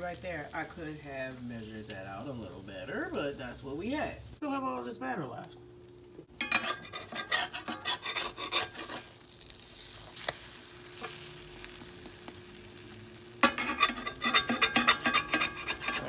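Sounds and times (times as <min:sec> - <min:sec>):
pancakes sizzling in skillet: 0:00.0 - 0:04.4, 0:05.8 - 0:16.0
spatula scraping and tapping pan: 0:06.4 - 0:09.2, 0:13.4 - 0:16.0.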